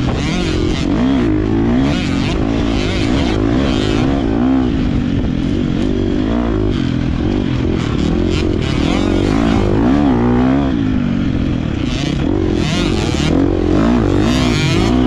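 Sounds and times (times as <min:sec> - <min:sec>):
motocross bike engine revving: 0:00.0 - 0:15.0.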